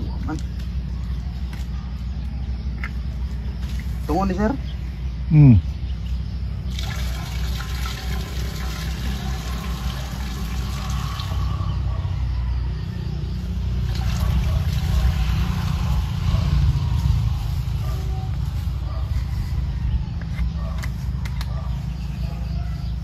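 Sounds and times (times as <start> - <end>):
liquid trickling into water: 6.7 - 11.5, 13.8 - 15.2.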